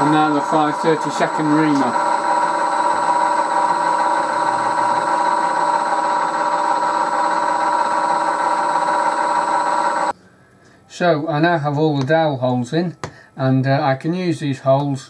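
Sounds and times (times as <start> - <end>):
milling machine humming: 0.0 - 10.1.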